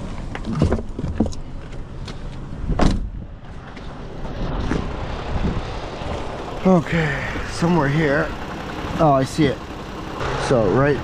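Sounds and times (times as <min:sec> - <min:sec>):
handling knocks and clunks: 0:00.0 - 0:04.0
car engine idling: 0:04.9 - 0:11.0.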